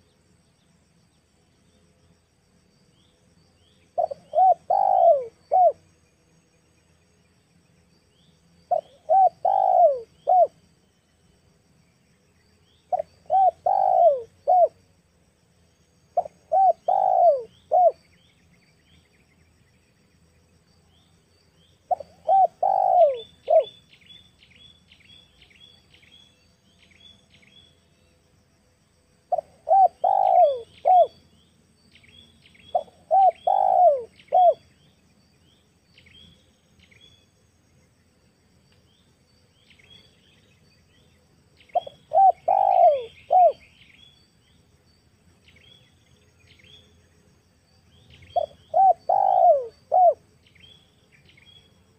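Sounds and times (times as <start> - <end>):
small birds chirping: 2.9 - 28.4, 29.2 - 51.9
dove cooing: 4.0 - 5.8, 8.7 - 10.6, 12.9 - 14.8, 16.2 - 18.0, 21.9 - 23.8, 29.3 - 31.2, 32.7 - 34.6, 41.7 - 43.8, 48.3 - 50.2.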